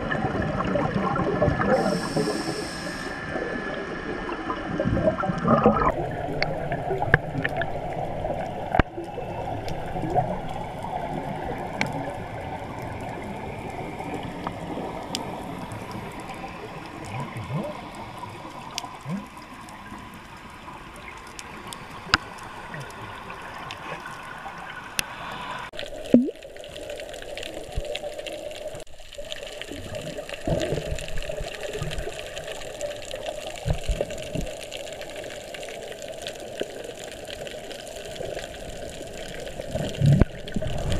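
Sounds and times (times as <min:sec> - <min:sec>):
bubble gurgles: 0:00.0 - 0:02.3, 0:03.3 - 0:15.2, 0:25.8 - 0:34.6, 0:36.6 - 0:40.9
muffled underwater wash of water: 0:00.0 - 0:40.9
sharp underwater clicks: 0:26.0 - 0:26.4.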